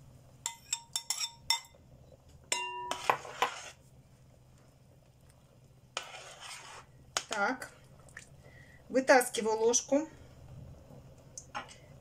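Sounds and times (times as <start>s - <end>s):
metal spoon clinking against pot: 0.5s - 1.8s, 2.5s - 3.1s.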